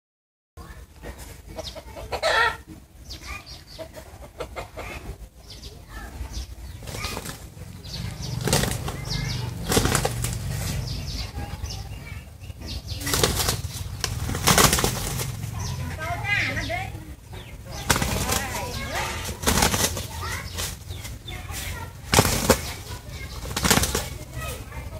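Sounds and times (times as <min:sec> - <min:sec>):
wings flapping: 0:06.6 - 0:11.7, 0:12.7 - 0:24.9.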